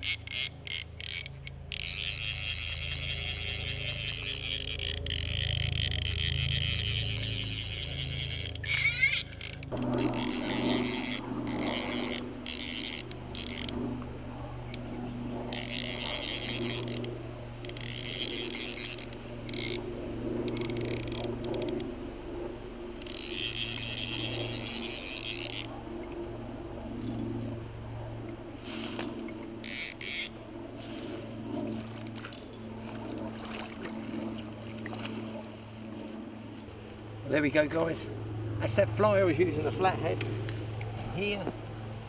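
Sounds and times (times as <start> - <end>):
fly reel ratchet buzzing: 0.0 - 27.7, 28.5 - 33.2.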